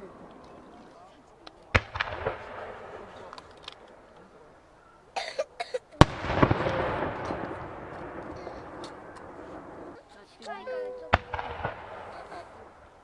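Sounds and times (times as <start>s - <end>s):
firework bang with echo: 1.7s - 3.3s, 6.0s - 10.0s, 11.1s - 12.7s.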